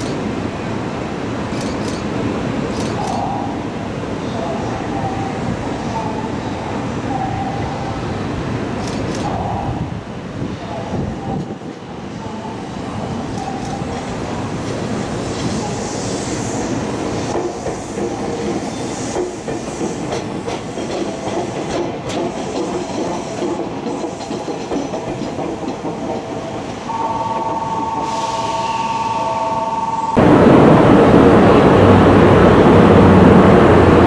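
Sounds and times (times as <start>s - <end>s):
electric train passing on rails: 0.0s - 34.0s
clickety-clack over rail joints: 1.5s - 3.2s, 17.3s - 26.9s
steady high tone: 26.9s - 31.7s.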